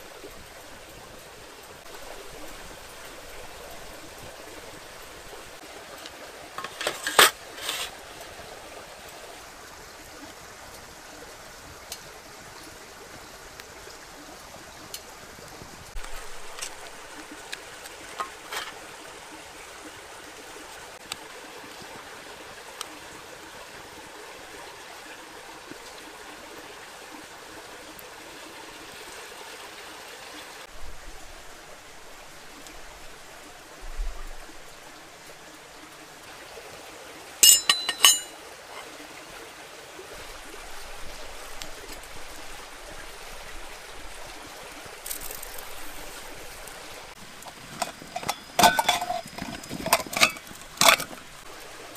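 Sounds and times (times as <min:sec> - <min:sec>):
flowing stream: 0:00.0 - 0:51.9
sharp ringing clinks: 0:37.4 - 0:38.4.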